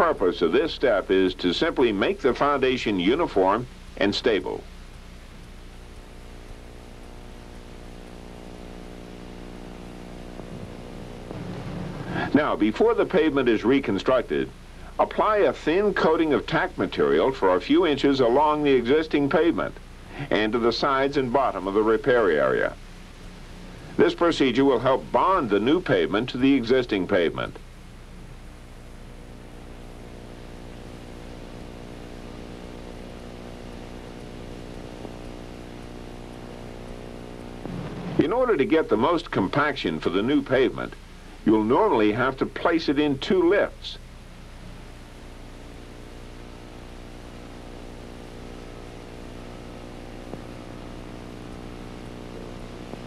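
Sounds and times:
diesel engine running: 10.3 - 12.4.

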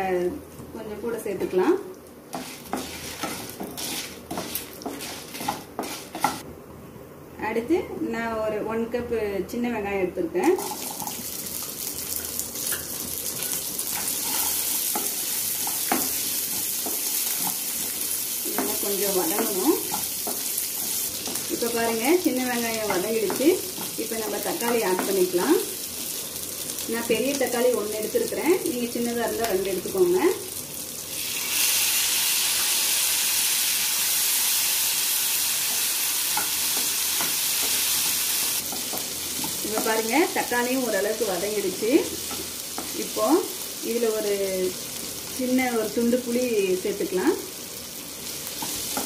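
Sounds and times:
food sizzling in oil: 2.3 - 6.4, 10.5 - 49.0
spatula scraping pan: 2.3 - 6.4, 13.9 - 17.8.

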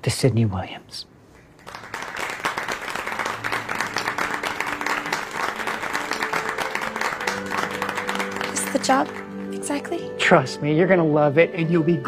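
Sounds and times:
people applauding: 1.4 - 10.1.

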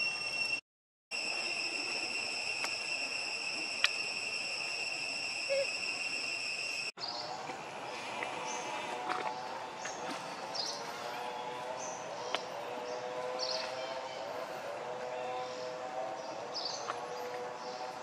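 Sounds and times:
insects droning: 0.0 - 6.9
faint chirps: 1.2 - 7.2.

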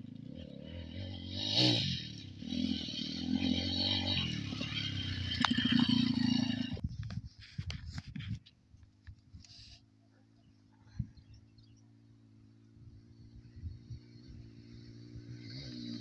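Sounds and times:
dirt bike engine revving: 0.0 - 6.8, 11.9 - 16.0.

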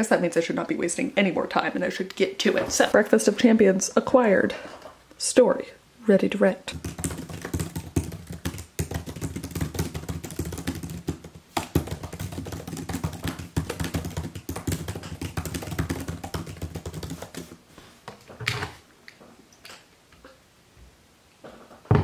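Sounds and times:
fast typing on laptop keyboard: 6.7 - 17.6.

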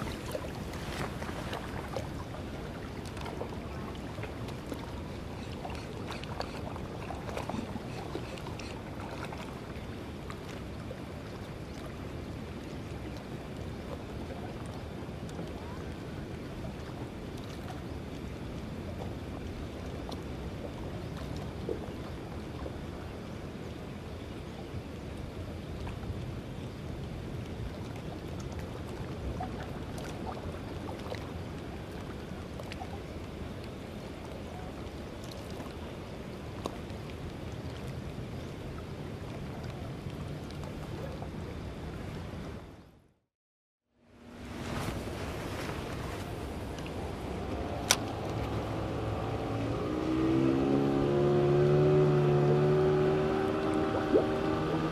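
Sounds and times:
wind on microphone: 0.0 - 2.6, 44.3 - 52.4
water: 0.0 - 54.9.

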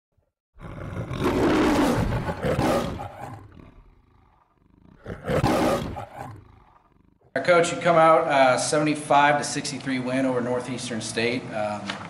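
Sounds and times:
lion roaring: 0.6 - 7.4.

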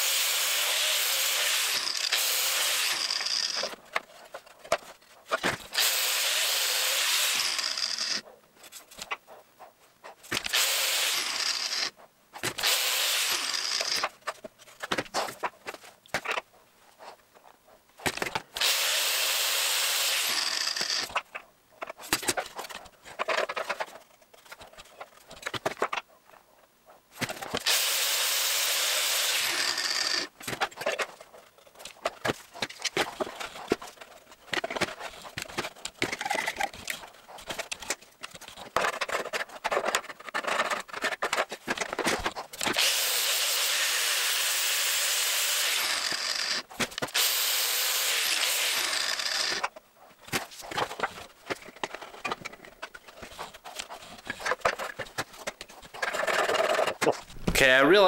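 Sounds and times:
angle grinder grinding metal: 0.0 - 3.8, 5.7 - 8.2, 10.5 - 11.9, 12.6 - 14.1, 18.6 - 21.2, 27.6 - 30.3, 42.6 - 49.7.

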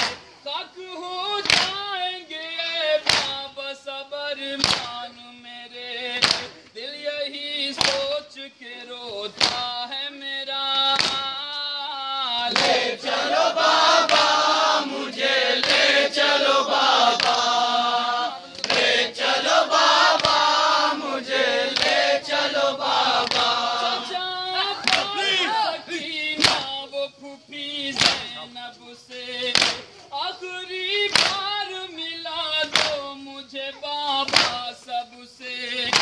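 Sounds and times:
men chanting a lament: 0.0 - 36.0
loud chorus of voices: 12.2 - 36.0.

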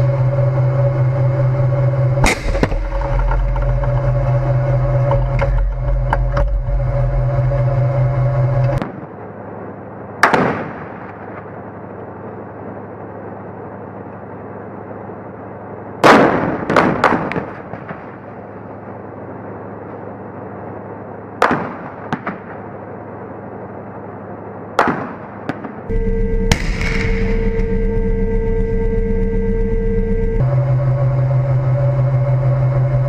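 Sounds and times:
tank engine running: 0.0 - 21.5, 25.9 - 33.0
heavy blast: 2.2 - 3.6, 25.9 - 29.0
gunshot cracks: 26.5 - 27.4.

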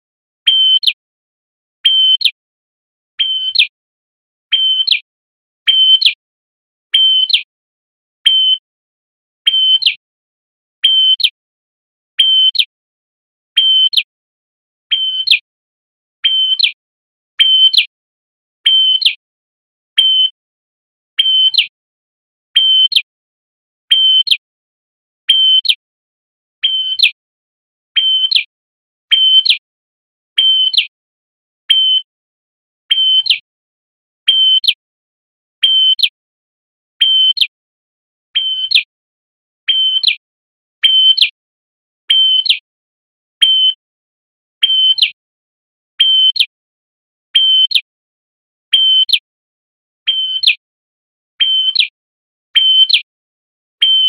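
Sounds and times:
bird singing repeated call: 0.4 - 1.0, 1.8 - 2.4, 3.2 - 3.8, 4.5 - 6.2, 6.9 - 7.5, 8.2 - 8.7, 9.4 - 10.0, 10.8 - 11.4, 12.2 - 12.7, 13.5 - 14.1, 14.9 - 15.4, 16.2 - 16.8, 17.4 - 17.9, 18.6 - 19.2, 19.9 - 20.4, 21.2 - 21.7, 22.5 - 23.1, 23.9 - 24.4, 25.2 - 25.8, 26.6 - 27.2, 27.9 - 28.5, 29.1 - 29.6, 30.3 - 30.9, 31.6 - 32.2, 32.9 - 33.4, 34.2 - 34.8, 35.6 - 36.2, 37.0 - 37.6, 38.3 - 38.9, 39.6 - 40.2, 40.8 - 41.4, 42.1 - 42.6, 43.4 - 43.9, 44.6 - 45.2, 46.0 - 46.5, 47.3 - 47.9, 48.7 - 49.3, 50.0 - 50.6, 51.4 - 53.1, 53.8 - 54.0.

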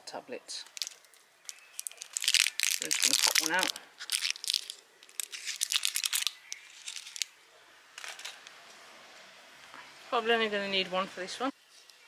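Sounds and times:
packaging crinkling and tearing: 0.6 - 7.3
rustles: 0.6 - 12.0.

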